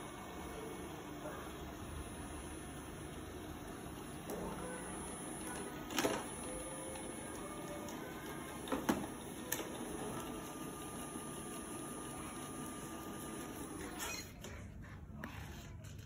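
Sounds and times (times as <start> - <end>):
robot vacuum motor humming: 0.0 - 14.3.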